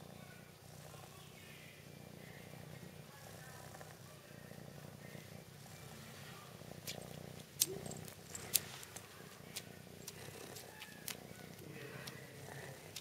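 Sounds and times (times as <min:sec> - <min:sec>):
kitten purring: 0:00.0 - 0:13.0.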